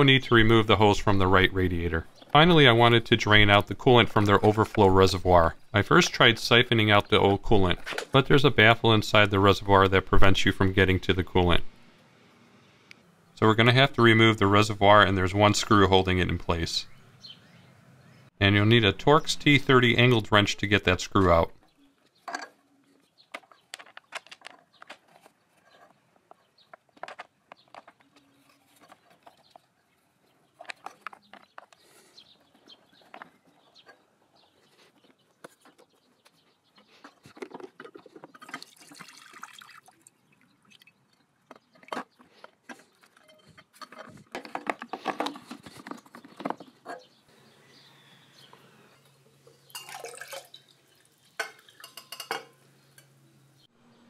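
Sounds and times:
liquid splashing and dripping: 38.5 - 41.0, 49.6 - 52.2.

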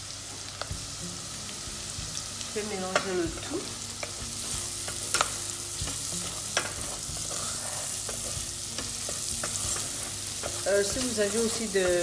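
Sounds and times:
bacon and onion sizzling in a pan: 0.0 - 12.0
wooden spatula scraping a pan: 6.6 - 12.0.

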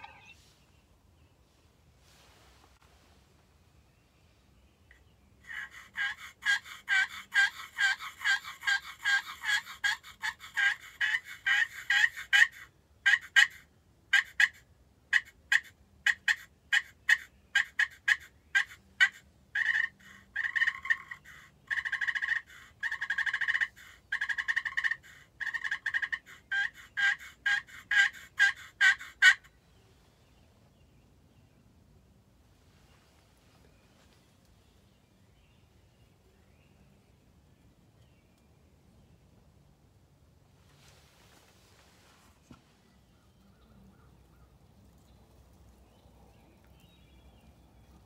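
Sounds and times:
turkey call yelps: 0.0 - 0.4, 5.4 - 29.5
turkey call clucks and cutting: 4.9 - 29.5
turkey call raspy purring: 5.4 - 29.5.

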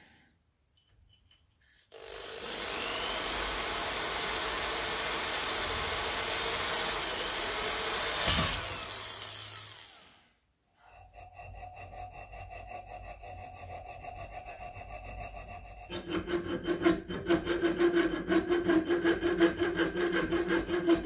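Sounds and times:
electric drill whining: 1.9 - 10.3.

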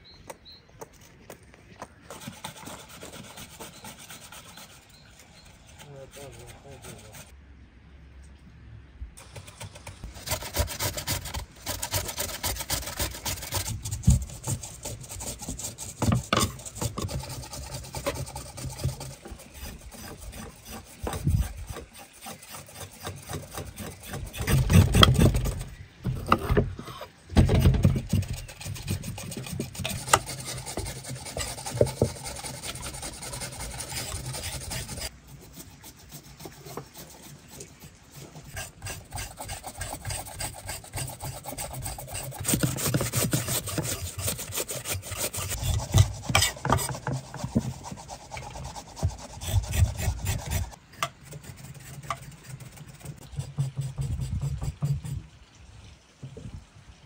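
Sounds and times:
grating on metal grater: 5.8 - 7.3, 10.1 - 25.6, 27.4 - 55.1
knife scraping carrots: 9.6 - 55.1.

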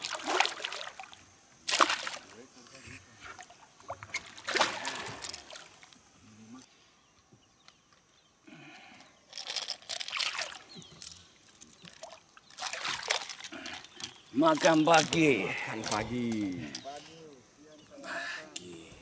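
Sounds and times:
fish splashing in water: 0.0 - 2.4, 3.3 - 5.8, 12.0 - 13.7.

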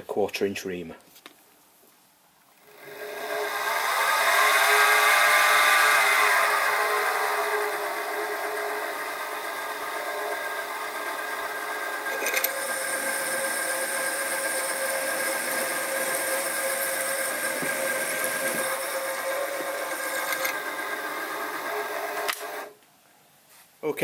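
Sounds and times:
drill bit cutting metal: 2.5 - 22.7
mill spindle whining: 2.5 - 22.7.

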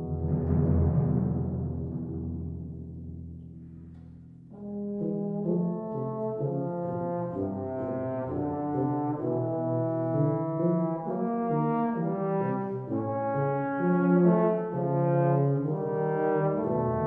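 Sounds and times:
timpani roll: 0.0 - 17.0
tuba notes: 4.4 - 17.0
trombone melody: 4.5 - 17.0.

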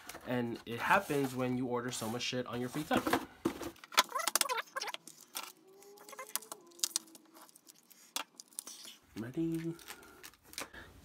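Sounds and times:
cardboard and paper rustling: 0.0 - 10.8.

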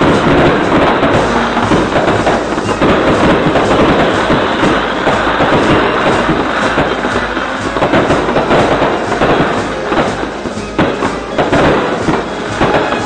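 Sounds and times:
fireworks bursting: 0.0 - 13.0.

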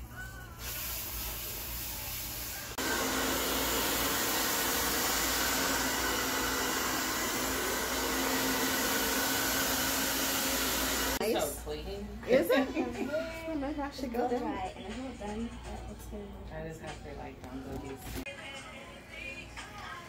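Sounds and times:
hair dryer blowing: 2.5 - 11.2.

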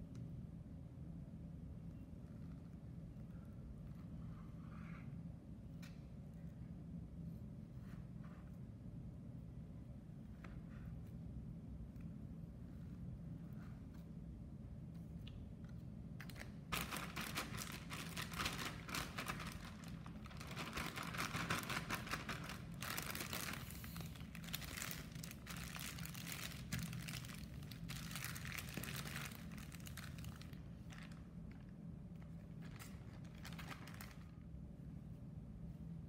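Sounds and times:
plastic bag crinkling: 16.2 - 31.7, 32.6 - 34.3.

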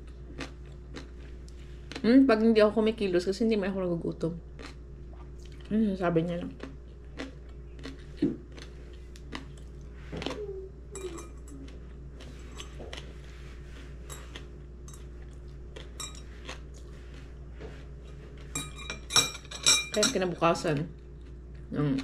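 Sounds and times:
faint low hum: 0.0 - 22.0
cutlery clinking on dishes: 18.6 - 20.3.

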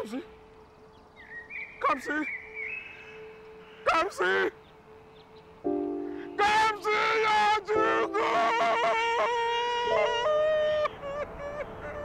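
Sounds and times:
man wailing and crying out: 6.3 - 11.0.

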